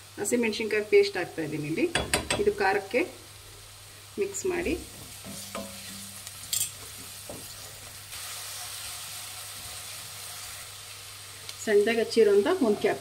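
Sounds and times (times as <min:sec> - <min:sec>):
onions sizzling in oil: 0:00.0 - 0:13.0
spatula scraping and tapping: 0:04.9 - 0:07.7.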